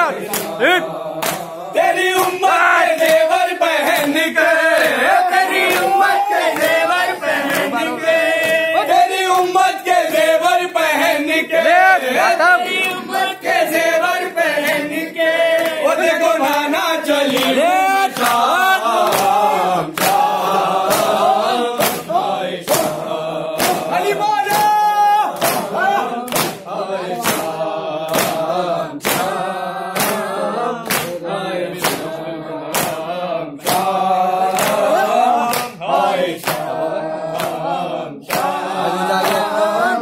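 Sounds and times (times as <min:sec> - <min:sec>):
men chanting in unison: 0:00.0 - 0:40.0
chest-beating slaps: 0:00.2 - 0:01.6, 0:08.4 - 0:08.7, 0:17.3 - 0:19.4, 0:20.0 - 0:29.4, 0:30.0 - 0:31.2, 0:31.8 - 0:32.1, 0:32.7 - 0:35.8, 0:36.4 - 0:39.6.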